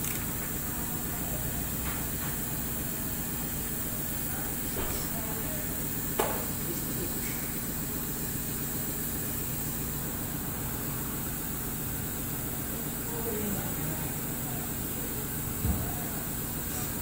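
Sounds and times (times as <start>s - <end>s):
workshop background noise: 0.0s - 17.0s.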